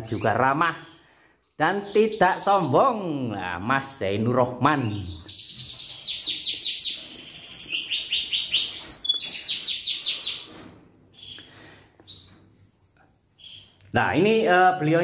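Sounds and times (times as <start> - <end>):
canary singing trills: 0.0 - 3.2, 4.4 - 12.6, 13.4 - 15.0.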